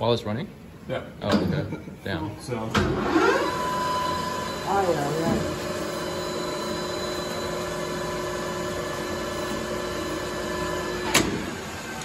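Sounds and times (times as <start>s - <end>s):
metal lathe whining: 3.0s - 12.0s
lathe shutting off clunk: 6.4s - 12.0s.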